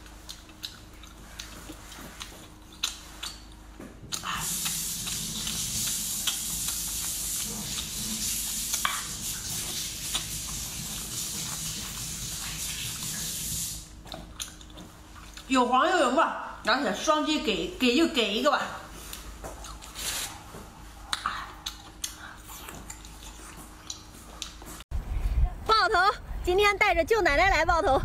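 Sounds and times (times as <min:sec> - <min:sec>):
wet chewing: 0:00.0 - 0:15.6, 0:19.0 - 0:24.8.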